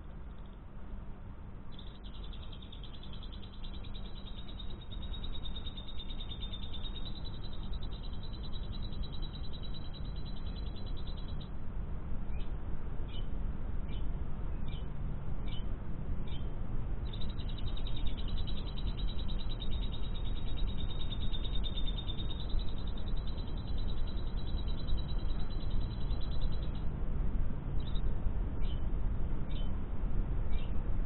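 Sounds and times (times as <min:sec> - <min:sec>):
low background hiss: 0:00.0 - 0:31.0
lovebird chirps and trill: 0:01.7 - 0:11.5, 0:15.5 - 0:26.9, 0:27.8 - 0:28.9, 0:29.5 - 0:29.7, 0:30.5 - 0:30.8.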